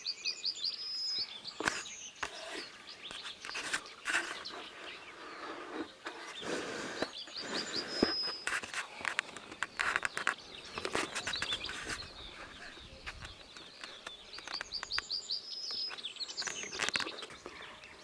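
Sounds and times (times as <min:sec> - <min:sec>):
songbirds singing: 0:00.0 - 0:18.0
scattered clicks and knocks: 0:08.0 - 0:12.1.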